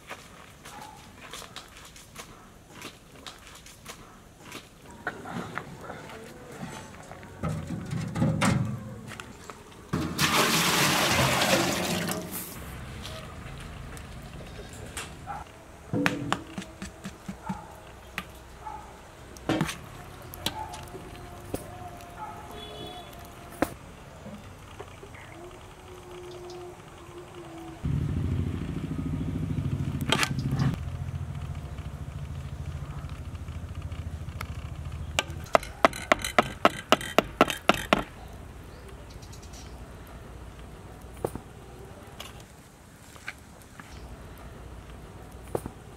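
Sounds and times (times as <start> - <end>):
sharp knocks: 15.9 - 17.6.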